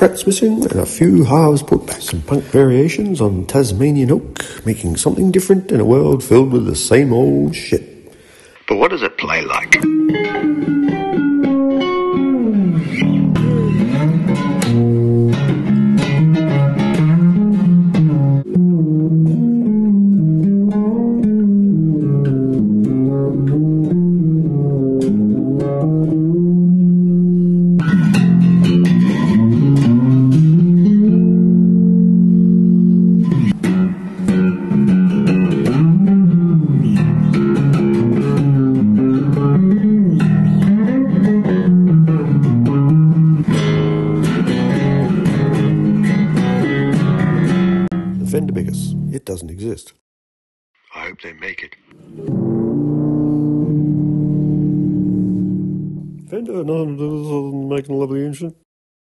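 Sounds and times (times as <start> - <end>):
electric bass line through amp: 9.4 - 49.2, 51.9 - 57.4.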